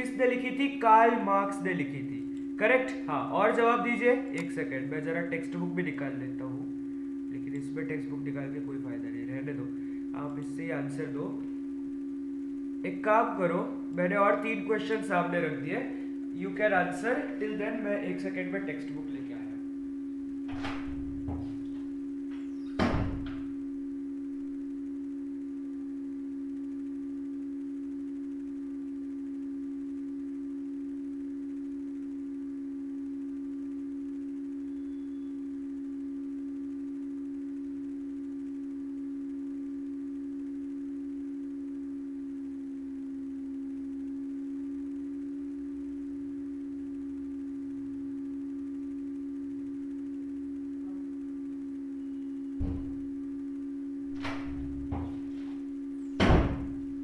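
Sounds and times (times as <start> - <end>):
steady low hum: 0.0 - 57.0
loud thump: 20.5 - 21.6, 22.8 - 23.5, 52.6 - 53.0, 54.1 - 55.6, 56.2 - 56.8.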